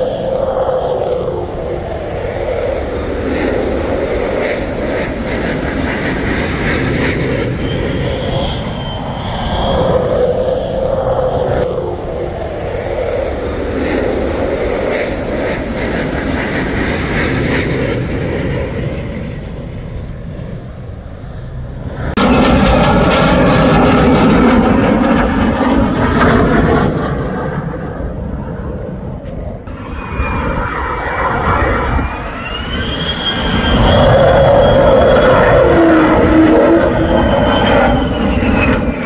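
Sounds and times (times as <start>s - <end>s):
high whine rising in pitch: 0.0s - 5.6s, 6.9s - 16.2s, 29.6s - 39.0s
fighter jet engine rumble: 0.0s - 39.0s.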